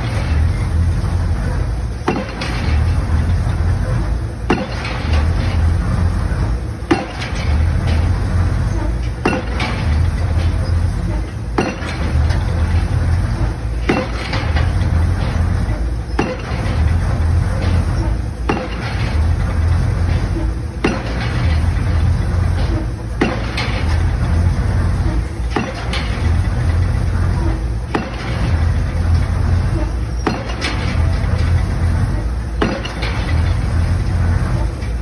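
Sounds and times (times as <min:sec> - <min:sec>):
diesel engine running: 0:00.0 - 0:35.0
pile driver hammer blows: 0:02.0 - 0:35.0.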